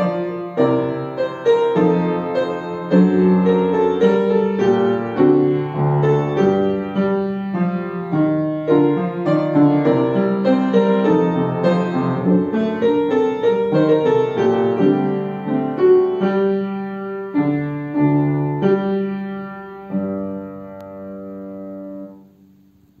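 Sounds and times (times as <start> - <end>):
upright piano playing: 0.0 - 23.0.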